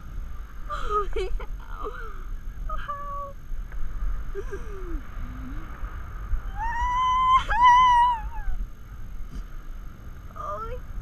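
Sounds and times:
wind buffeting microphone: 0.0 - 11.0
person squealing with excitement: 6.5 - 8.6.

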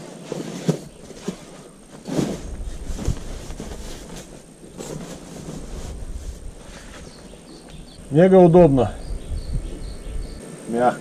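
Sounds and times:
nylon rustling: 0.0 - 7.7.

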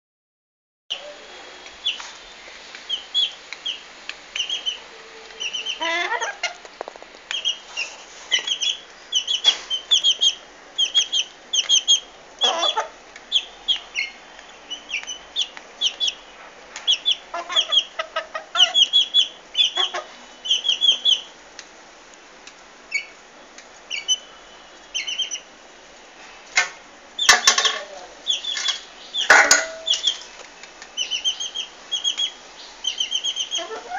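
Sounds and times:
chicks peeping: 1.8 - 2.2, 2.8 - 6.7, 7.3 - 21.4, 23.8 - 25.5, 27.2 - 33.9.

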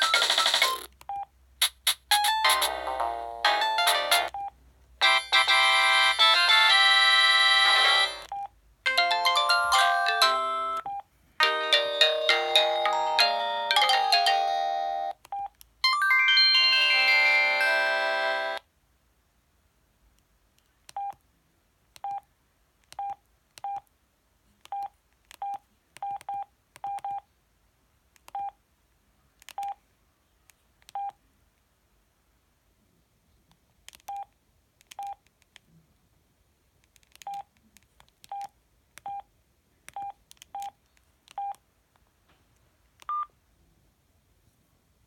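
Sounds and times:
phone keypad beeps: 31.0 - 31.2, 41.4 - 41.6, 43.0 - 43.3.

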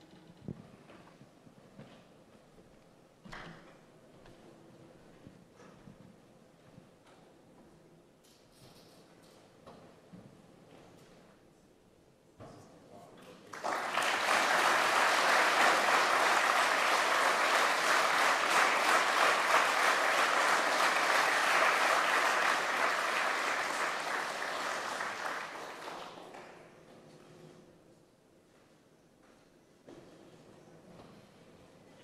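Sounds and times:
audience applauding: 13.5 - 26.7.

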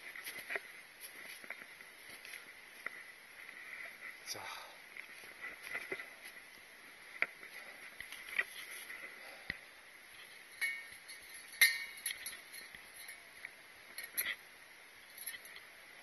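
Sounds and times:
footsteps crunching on snow: 0.0 - 9.2.

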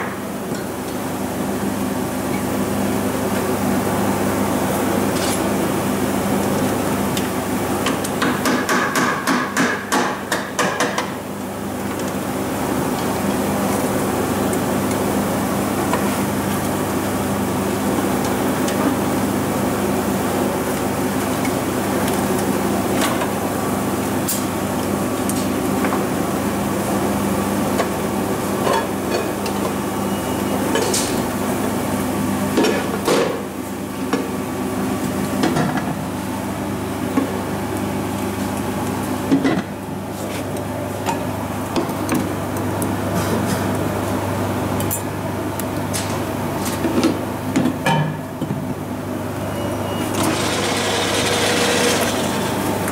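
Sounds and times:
metal lathe hum: 50.3 - 52.8.

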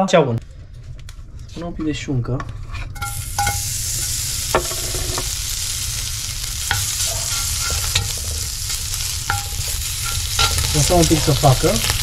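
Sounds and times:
pork fat sizzling: 3.0 - 12.0.

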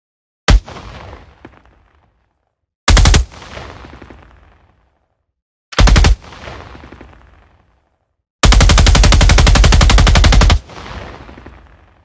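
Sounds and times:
rifle firing full auto: 2.9 - 3.4, 8.4 - 10.6.

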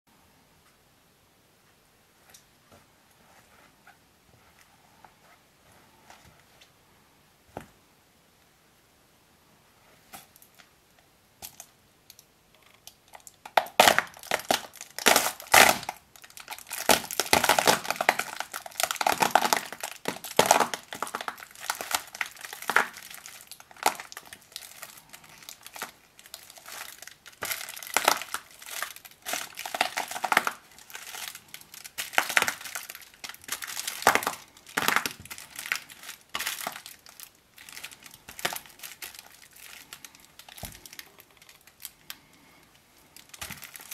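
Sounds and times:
foil crinkling under shoe: 13.2 - 41.9, 43.2 - 43.9.

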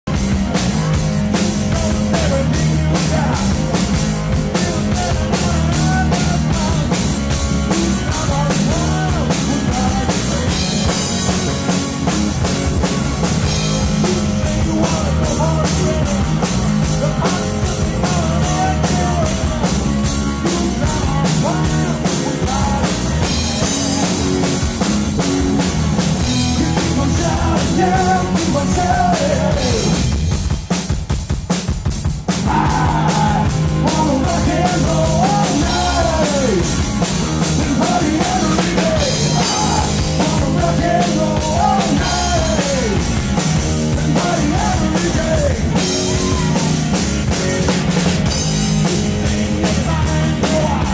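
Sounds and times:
electric bass: 0.0 - 50.9
man singing lead: 0.1 - 11.8, 13.4 - 24.9, 26.2 - 30.2, 32.3 - 50.9
electric guitar: 0.1 - 30.8, 32.3 - 50.9
drum kit steady beat: 0.1 - 50.9.

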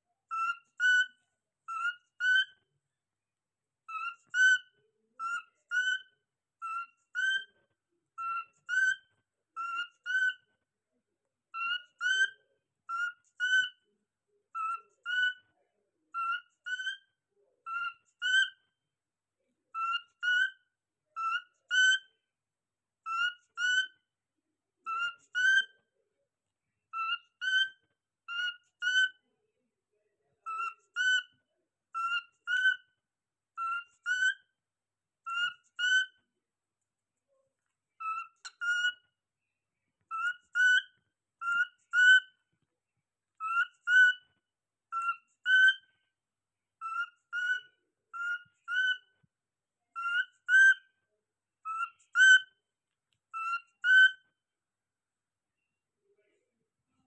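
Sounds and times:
cockatiel whistled calls: 0.3 - 1.1, 1.7 - 2.6, 3.9 - 4.6, 5.2 - 7.5, 8.2 - 10.4, 11.6 - 13.8, 14.6 - 15.4, 16.2 - 17.1, 17.7 - 18.6, 19.8 - 20.6, 21.2 - 22.1, 23.0 - 24.0, 24.9 - 25.8, 26.9 - 29.1, 30.5 - 31.3, 32.0 - 32.9, 33.6 - 34.4, 35.2 - 36.2, 38.0 - 39.1, 40.0 - 42.4, 43.4 - 44.2, 44.9 - 45.9, 46.8 - 49.1, 49.9 - 50.9, 51.6 - 52.5, 53.3 - 54.2.

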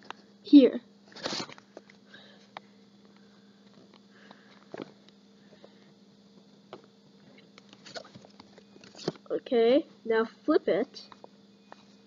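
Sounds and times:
paper rustling and creasing: 1.0 - 1.9.

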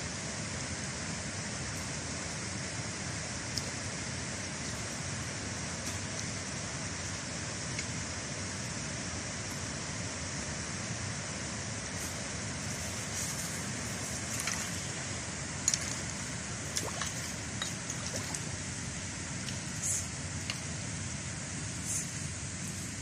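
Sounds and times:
water trickling in a channel: 16.7 - 18.5.

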